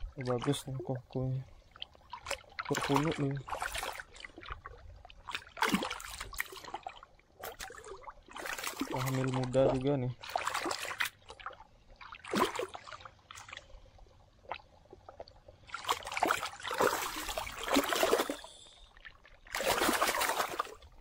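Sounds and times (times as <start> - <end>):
water splashing and sloshing: 0.0 - 21.0.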